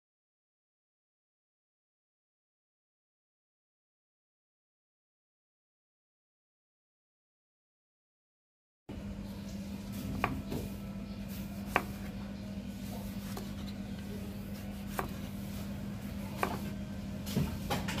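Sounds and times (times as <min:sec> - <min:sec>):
steady low hum: 0:08.9 - 0:18.0
knife knocking on wooden board: 0:14.9 - 0:15.2, 0:16.4 - 0:16.7.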